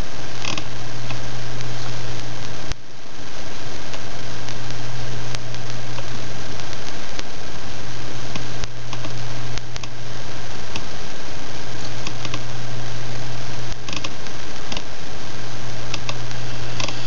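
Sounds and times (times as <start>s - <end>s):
background hiss: 0.0s - 17.0s
low hum: 0.0s - 17.0s
faint clicks: 3.8s - 7.3s, 8.3s - 10.0s, 11.8s - 12.5s, 13.5s - 15.0s, 15.9s - 17.0s.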